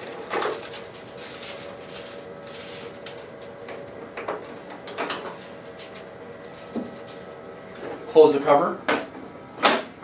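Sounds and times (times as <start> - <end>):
film rustling: 0.0 - 7.8.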